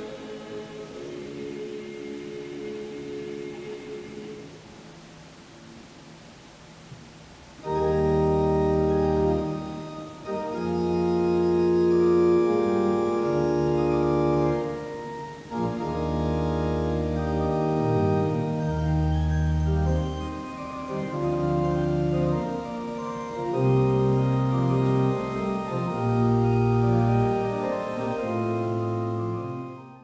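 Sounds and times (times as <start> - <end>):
church organ chords: 7.6 - 30.0.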